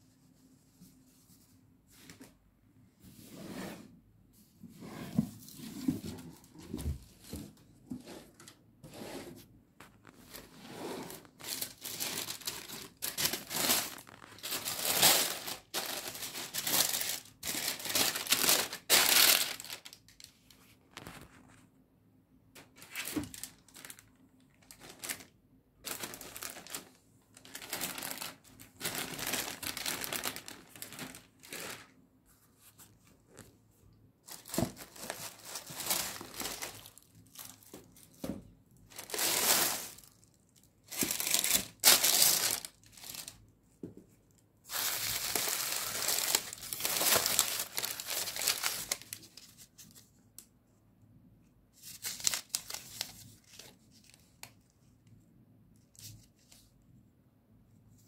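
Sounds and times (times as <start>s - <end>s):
tissue paper rustling: 9.3s - 21.6s, 22.6s - 33.5s, 34.2s - 38.2s, 38.9s - 43.4s, 44.7s - 50.0s, 51.8s - 54.4s.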